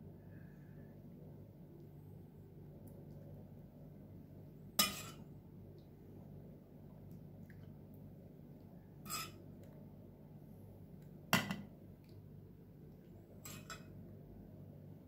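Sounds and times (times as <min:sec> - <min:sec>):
faint steady hum: 0:00.0 - 0:15.0
metal spoon clinking on pot: 0:04.8 - 0:05.2, 0:13.4 - 0:13.9.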